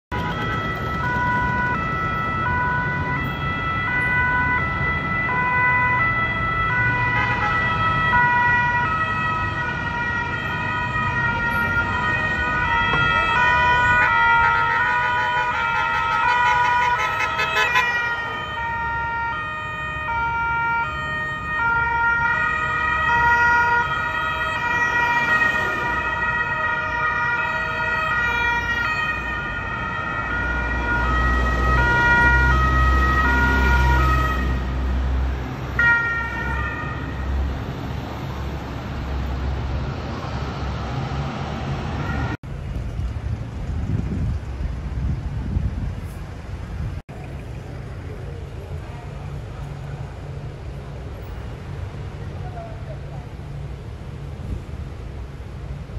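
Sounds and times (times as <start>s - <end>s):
traffic noise: 0.0s - 55.9s
two-tone sirens: 0.1s - 42.4s.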